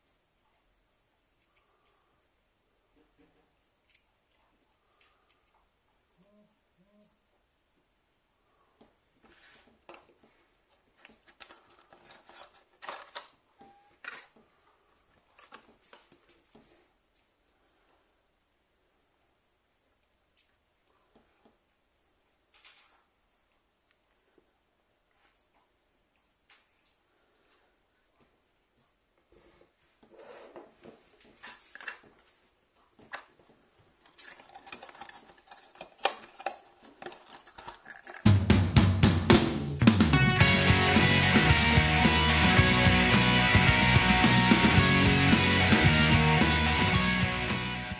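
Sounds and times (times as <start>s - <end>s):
plastic clicks: 11.0s - 14.5s, 34.0s - 38.2s
cardboard box rustling: 11.4s - 13.2s.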